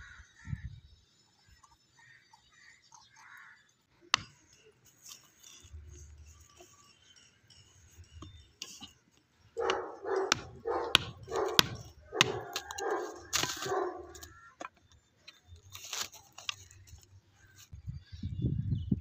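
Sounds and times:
dog barking: 0:09.6 - 0:14.2.

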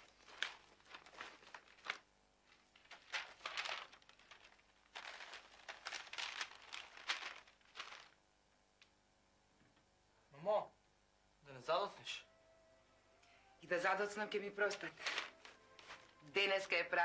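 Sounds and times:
paper rustling and crinkling: 0:00.0 - 0:08.2, 0:14.6 - 0:17.0.

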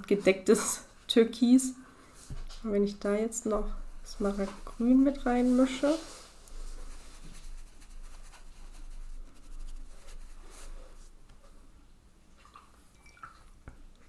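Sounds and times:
paintbrush scrubbing on paper: 0:03.4 - 0:11.2.

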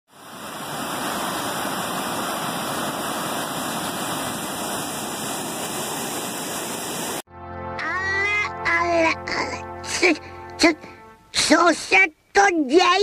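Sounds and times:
white water rushing: 0:00.1 - 0:07.2.

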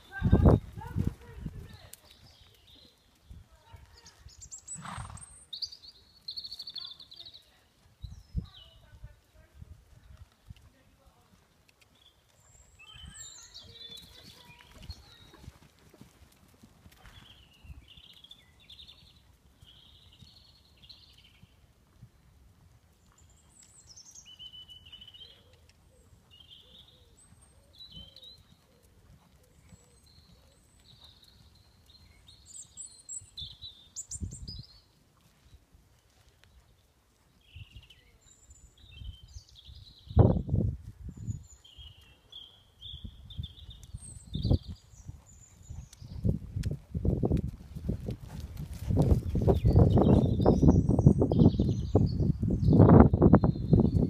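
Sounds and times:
horse hooves thudding on sand: 0:00.0 - 0:03.0, 0:10.2 - 0:21.4, 0:43.4 - 0:51.0
small birds chirping: 0:00.0 - 0:09.5, 0:10.1 - 0:16.0, 0:16.6 - 0:22.3, 0:22.9 - 0:54.0.

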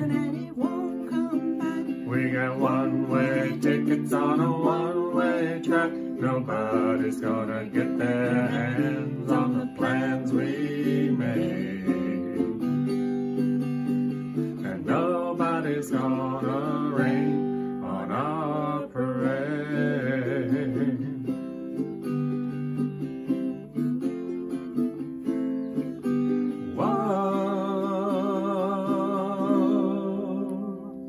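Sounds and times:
woman singing: 0:00.0 - 0:12.6, 0:14.6 - 0:21.2, 0:26.7 - 0:31.0
ukulele and guitar strumming: 0:00.0 - 0:31.0.

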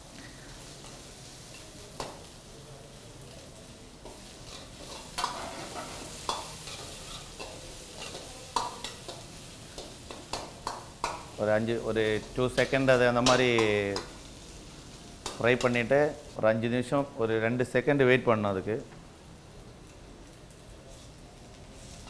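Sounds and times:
onions sizzling in hot oil: 0:00.0 - 0:22.0
metal ladle scraping a pan: 0:04.4 - 0:09.0.

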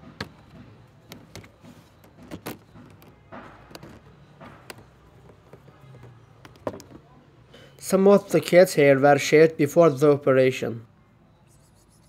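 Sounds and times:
light clicks and knocks: 0:00.0 - 0:07.2
faint low background noise: 0:00.0 - 0:12.0.

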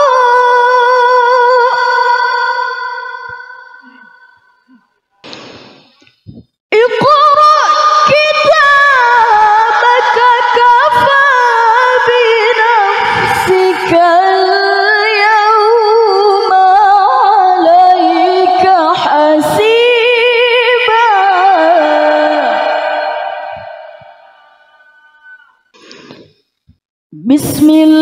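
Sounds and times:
woman reciting melodiously: 0:00.0 - 0:04.8, 0:06.8 - 0:24.6, 0:27.2 - 0:28.0.

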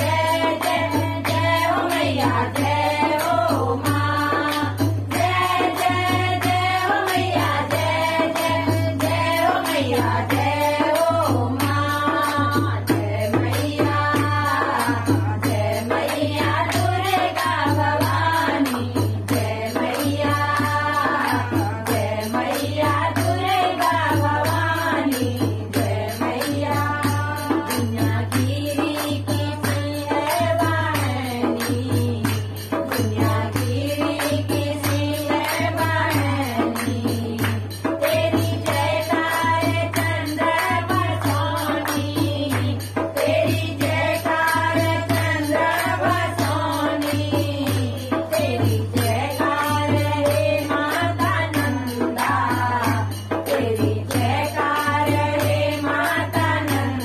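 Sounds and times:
hand drum: 0:00.0 - 0:57.0
rhythmic hand-clapping: 0:00.0 - 0:57.0
women singing together: 0:00.0 - 0:57.0.

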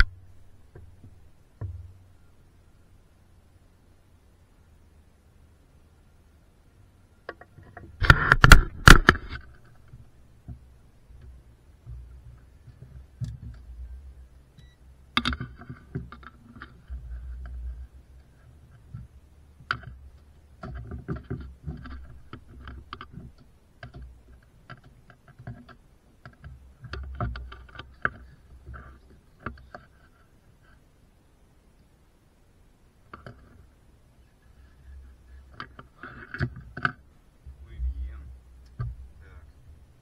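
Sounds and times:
low rumble: 0:37.4 - 0:40.0.

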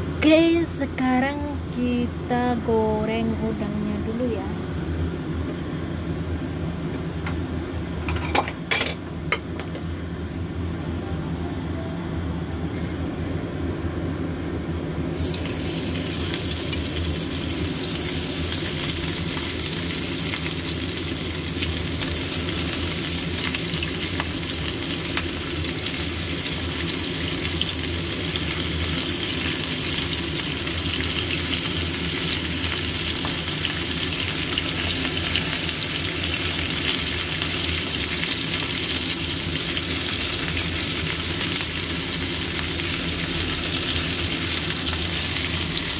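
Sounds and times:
shrimp sizzling in hot oil: 0:15.2 - 0:45.9.

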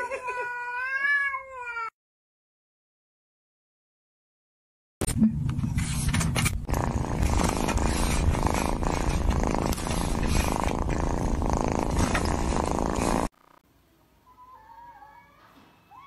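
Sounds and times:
cat purring: 0:06.7 - 0:13.6.

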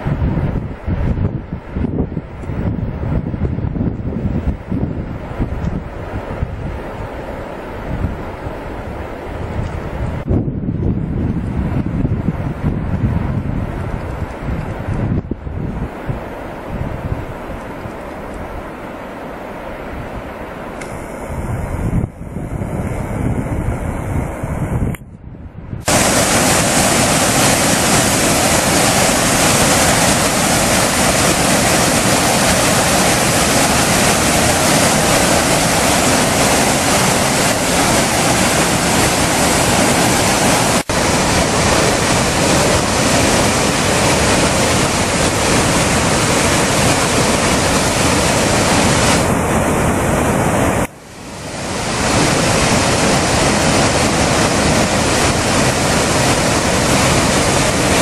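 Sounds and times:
waterfall rushing: 0:25.8 - 0:58.0.

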